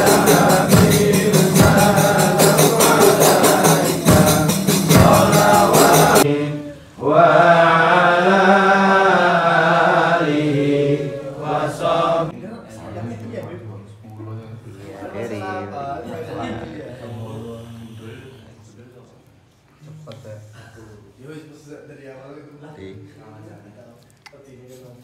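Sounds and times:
tambourine-like percussion: 0:00.0 - 0:06.3
crowd chanting: 0:00.0 - 0:12.4
group of voices singing: 0:00.0 - 0:12.4.

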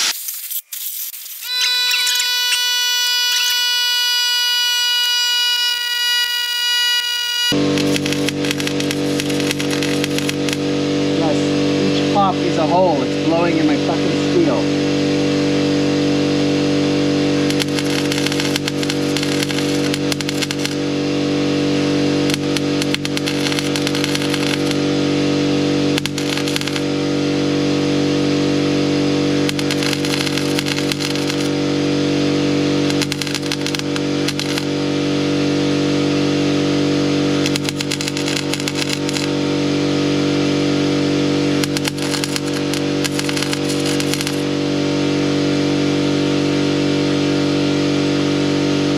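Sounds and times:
welding arc crackling and popping: 0:00.0 - 0:04.0, 0:07.6 - 0:10.6, 0:17.5 - 0:20.8, 0:22.3 - 0:24.8, 0:26.0 - 0:26.9, 0:29.5 - 0:31.5, 0:32.9 - 0:34.7, 0:37.4 - 0:39.4, 0:41.6 - 0:44.4
steady motor hum: 0:01.5 - 0:48.9.

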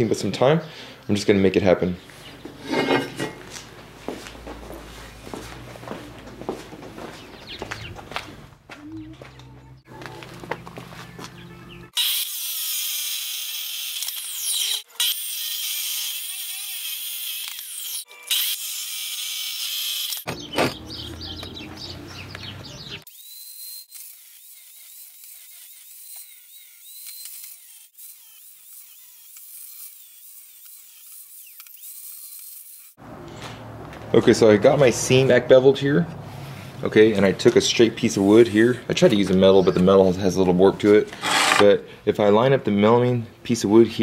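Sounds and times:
angle grinder cutting steel: 0:02.6 - 0:03.4, 0:11.9 - 0:20.3, 0:23.0 - 0:33.0, 0:41.1 - 0:41.8
chop saw grinding through metal: 0:02.6 - 0:03.4, 0:12.0 - 0:20.3, 0:41.1 - 0:41.8.

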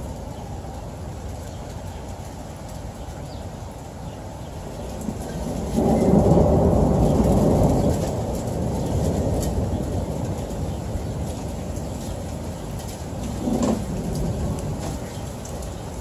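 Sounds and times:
thunder rolling: 0:04.9 - 0:16.0.

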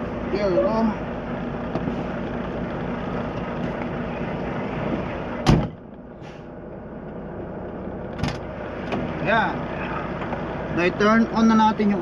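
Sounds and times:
truck diesel engine idling: 0:00.0 - 0:12.0
truck door slamming: 0:05.4 - 0:05.8.

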